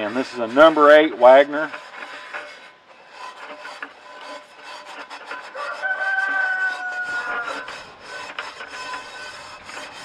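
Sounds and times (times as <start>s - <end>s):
steel wool scrubbing a skillet: 0.0s - 10.0s
rooster crowing: 5.5s - 7.8s.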